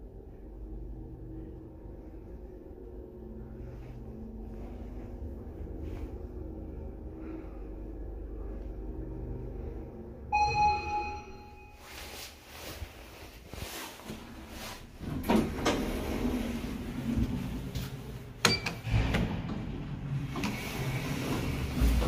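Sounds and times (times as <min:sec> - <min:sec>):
elevator doors clunking: 0:10.3 - 0:11.6, 0:14.1 - 0:22.0
elevator door mechanism rumble: 0:14.0 - 0:22.0.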